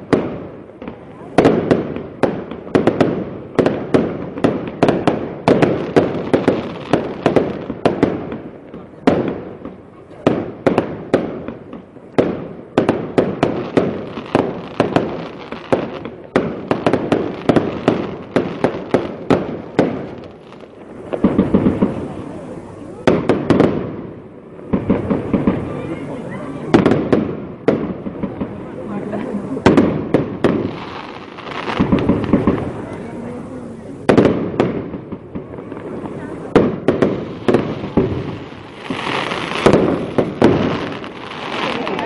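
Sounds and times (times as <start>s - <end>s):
fireworks bursting with sharp bangs: 0.0s - 42.0s.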